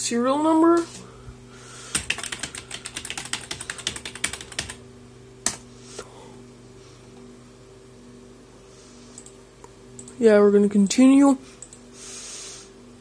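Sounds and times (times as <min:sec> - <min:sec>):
keyboard typing: 0:01.9 - 0:04.8.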